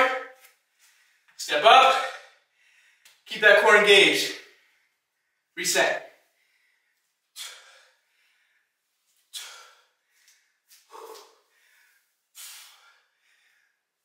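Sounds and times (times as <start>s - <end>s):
faint breaths: 0.6s - 3.2s, 6.2s - 14.0s
man's hissing exhales: 12.4s - 13.0s.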